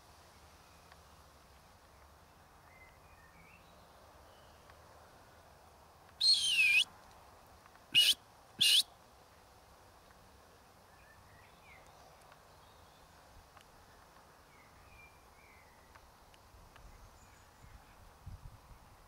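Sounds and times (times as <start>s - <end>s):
faint chirps: 6.2s - 6.8s, 8.0s - 8.8s
high whistle-like calls: 6.2s - 6.9s, 8.0s - 8.9s.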